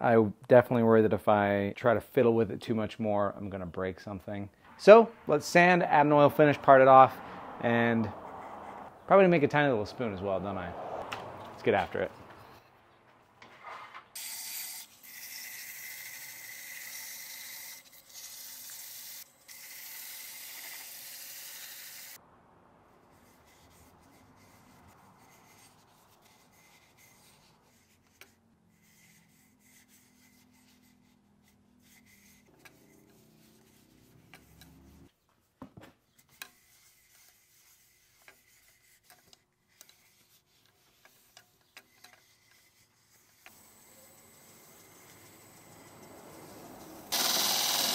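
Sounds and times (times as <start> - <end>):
sandpaper rubbing spinning wood: 14.8 - 22.2, 23.1 - 35.1, 36.5 - 47.9.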